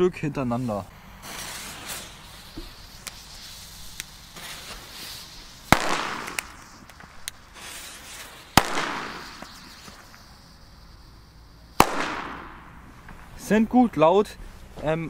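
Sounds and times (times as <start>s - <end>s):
firecracker bangs with echo: 5.7s - 10.0s, 11.8s - 12.9s.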